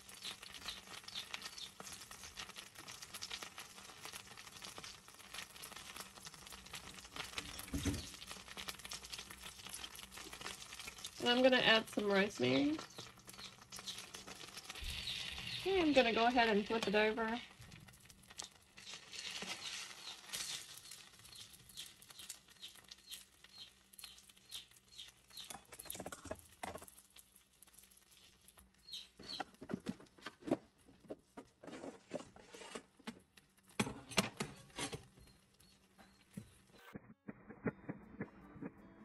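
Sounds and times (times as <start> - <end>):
meat sizzling in oil: 0.0 - 29.3
popping spattering fat: 0.0 - 30.8.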